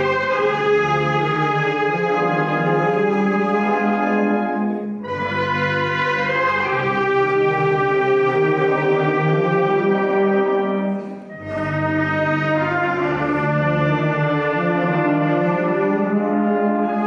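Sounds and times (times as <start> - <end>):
wind band playing funeral march: 0.0 - 17.0.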